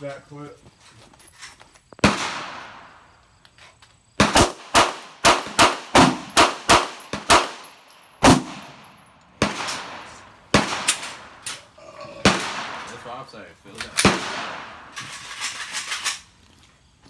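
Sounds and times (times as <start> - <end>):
rapid gunshots with echo: 4.2 - 7.6, 14.0 - 14.9.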